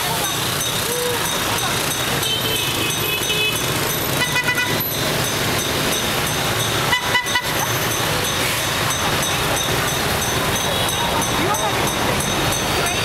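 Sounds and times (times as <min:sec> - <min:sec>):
scooter and motorbike traffic: 0:00.0 - 0:13.0
horn beeps: 0:02.1 - 0:05.1, 0:06.6 - 0:09.4.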